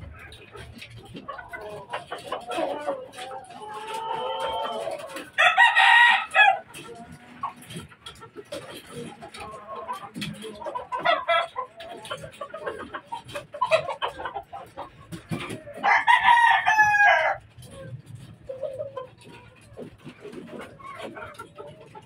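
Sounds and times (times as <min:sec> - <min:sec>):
chickens clucking: 0:00.0 - 0:22.0
rooster crowing: 0:05.4 - 0:06.6, 0:15.8 - 0:17.4.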